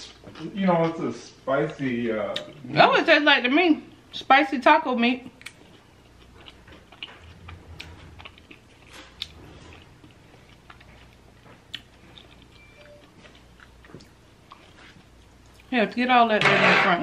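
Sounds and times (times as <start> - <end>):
close chewing of food: 5.3 - 15.8.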